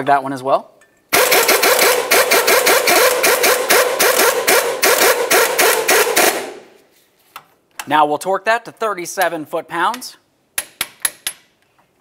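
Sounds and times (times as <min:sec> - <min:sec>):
impact wrench hammering: 0:01.1 - 0:06.7, 0:10.6 - 0:11.5.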